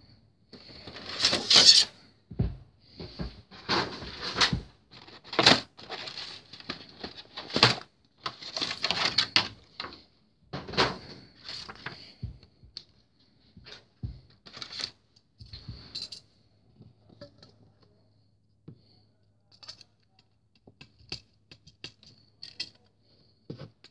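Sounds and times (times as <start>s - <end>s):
plastic packaging rustling: 0.6s - 1.9s, 3.6s - 10.0s, 11.4s - 12.1s, 14.5s - 15.0s.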